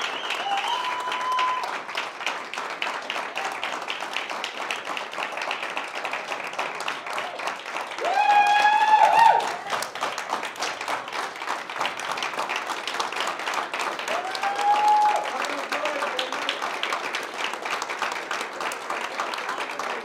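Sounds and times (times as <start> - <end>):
people applauding: 0.0 - 20.0
person whooping: 0.3 - 1.7, 8.0 - 9.7, 14.1 - 15.3.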